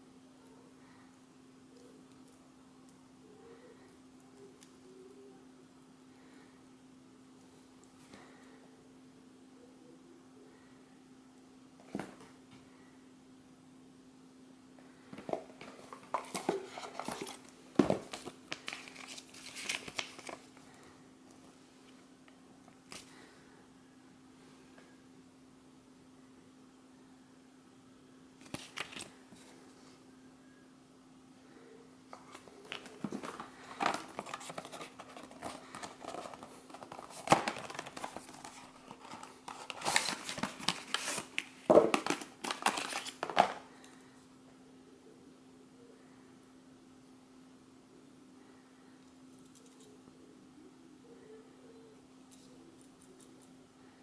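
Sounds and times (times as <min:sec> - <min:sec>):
paper rustling: 0:15.6 - 0:20.5, 0:28.4 - 0:29.1, 0:32.1 - 0:43.6
plastic pieces pulled out: 0:32.1 - 0:43.6.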